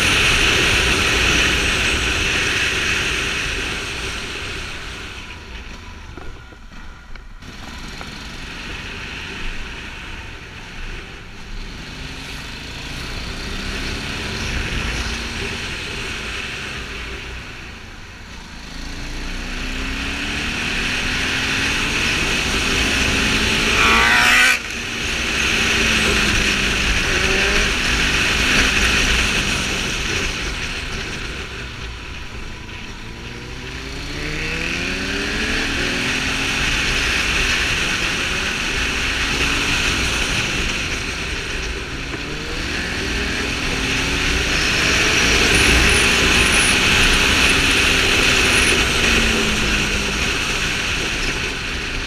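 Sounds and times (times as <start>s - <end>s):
motorcycle engine: 0.0s - 52.0s
wind and road noise: 0.0s - 52.0s.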